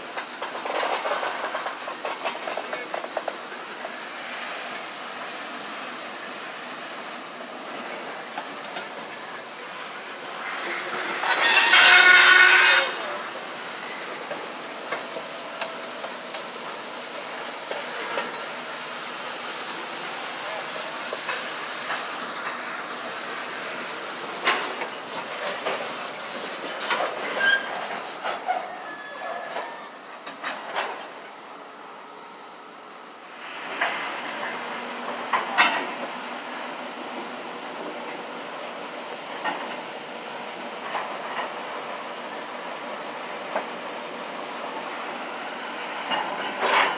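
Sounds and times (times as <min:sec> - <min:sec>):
train wheels clicking over rail joints: 0:00.0 - 0:05.6, 0:06.2 - 0:31.6, 0:33.6 - 0:46.9
faint wheel squeal: 0:27.2 - 0:30.6, 0:36.7 - 0:37.2.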